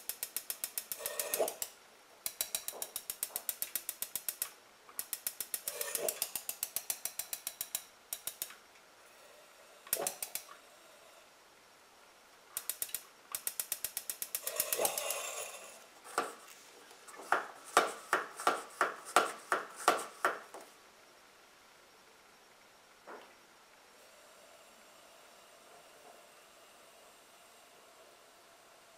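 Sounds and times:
gas hissing rush: 0:00.0 - 0:01.8, 0:02.4 - 0:07.3, 0:12.6 - 0:20.3
lantern igniter clicking: 0:00.0 - 0:08.6, 0:09.9 - 0:10.5, 0:12.6 - 0:16.4.

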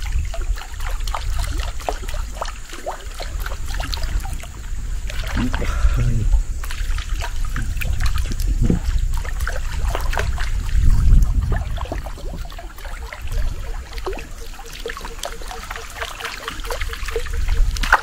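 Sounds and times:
water trickling and splashing: 0:00.0 - 0:18.0
low rumble: 0:04.2 - 0:12.4.

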